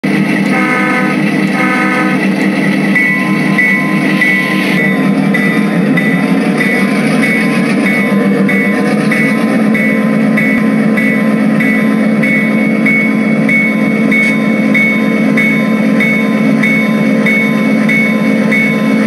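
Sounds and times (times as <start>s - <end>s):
locomotive bell ringing: 0.1s - 19.0s
train horn blast: 0.4s - 2.3s.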